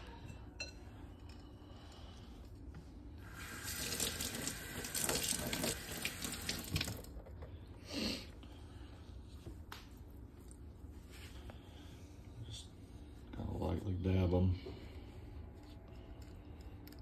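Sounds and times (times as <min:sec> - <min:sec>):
faucet running into steel sink: 0:03.3 - 0:07.1.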